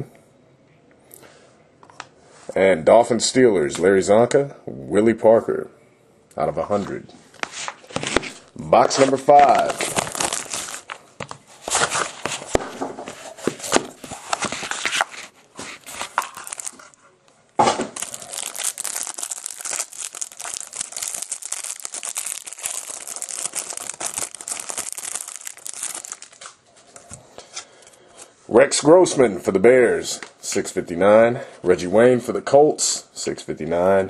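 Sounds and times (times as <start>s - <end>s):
plastic wrapping tearing and crinkling: 7.8s - 11.0s, 13.7s - 17.0s, 17.7s - 26.6s.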